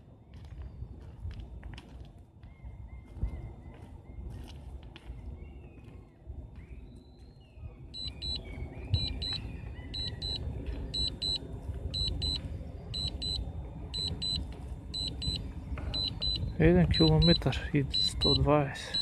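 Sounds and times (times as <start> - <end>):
remote controller alarm beeps: 8.0 - 14.4, 15.0 - 19.0.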